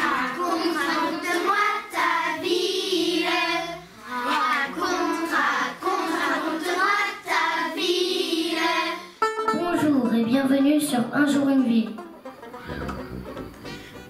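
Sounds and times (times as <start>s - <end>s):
children singing: 0.0s - 9.1s.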